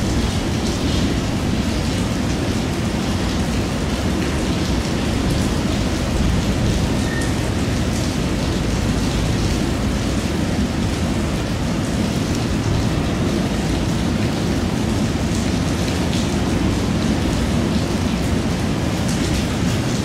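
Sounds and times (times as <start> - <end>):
heavy rain hissing: 0.0 - 20.0.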